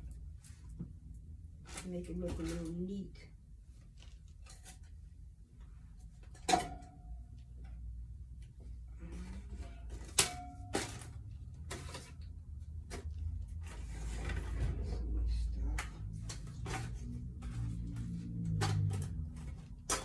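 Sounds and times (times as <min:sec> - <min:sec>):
items clacking on wire shelves: 0:01.6 - 0:03.1, 0:06.0 - 0:20.0.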